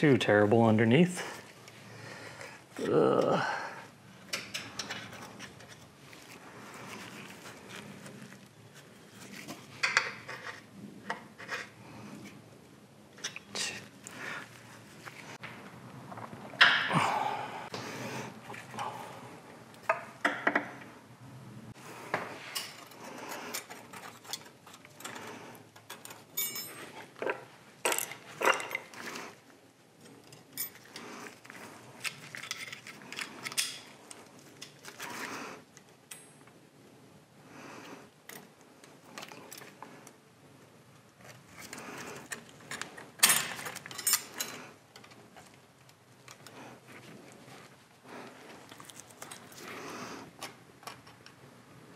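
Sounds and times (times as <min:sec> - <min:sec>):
metal tools clinking and scraping: 0:04.3 - 0:07.8, 0:22.4 - 0:29.3, 0:30.0 - 0:35.2, 0:41.5 - 0:45.2.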